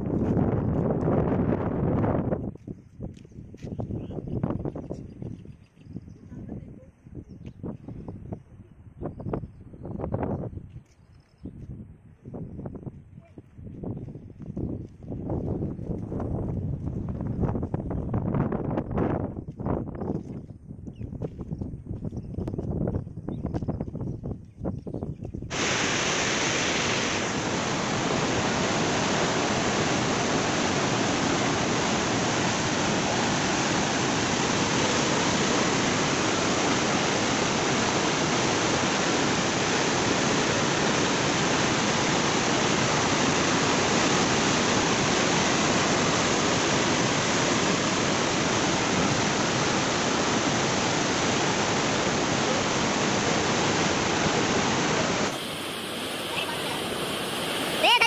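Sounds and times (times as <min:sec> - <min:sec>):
water rushing over a weir: 0:25.5 - 0:58.0.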